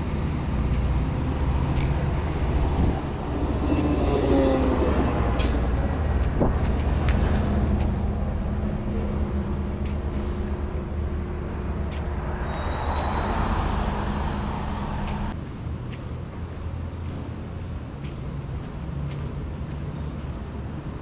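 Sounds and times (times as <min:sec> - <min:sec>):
heavy vehicle engine running: 0:00.0 - 0:15.4
high squealing tones: 0:12.1 - 0:15.3.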